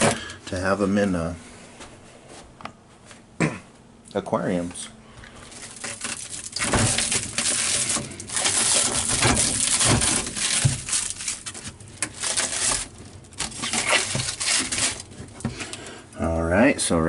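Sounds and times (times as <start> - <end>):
plastic packaging crinkling: 5.3 - 16.0.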